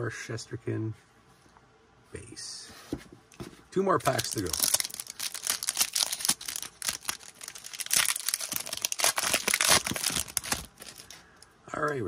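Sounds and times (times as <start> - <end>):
foil wrapper crinkling and tearing: 4.0 - 11.3.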